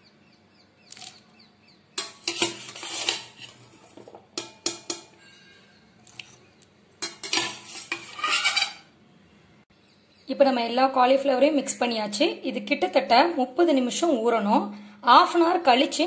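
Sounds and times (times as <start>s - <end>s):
metal strainer knocking against bowl: 4.4s - 5.4s.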